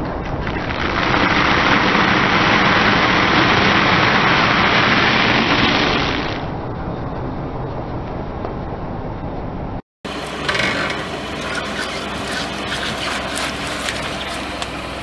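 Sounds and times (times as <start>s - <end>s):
tyre crushing dry noodles: 10.8s - 14.9s.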